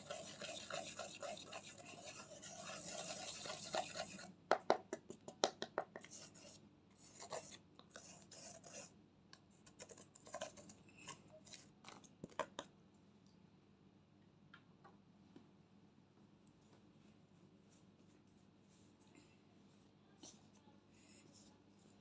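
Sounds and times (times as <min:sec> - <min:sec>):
makeup brush scraping eyeshadow: 0:00.0 - 0:04.3, 0:06.1 - 0:08.9.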